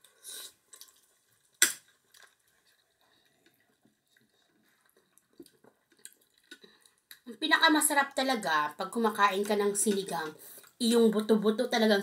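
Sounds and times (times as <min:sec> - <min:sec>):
slurping soup: 0:00.0 - 0:07.1.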